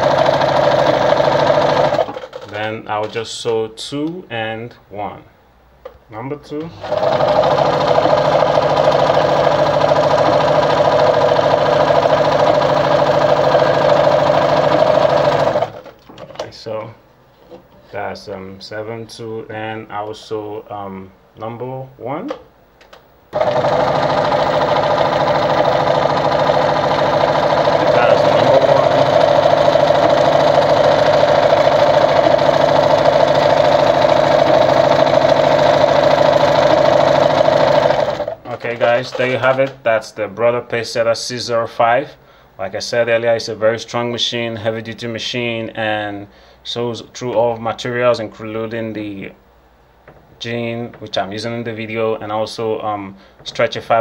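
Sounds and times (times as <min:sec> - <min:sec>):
sewing machine running: 0:00.0 - 0:02.6, 0:06.7 - 0:16.0, 0:23.3 - 0:39.7.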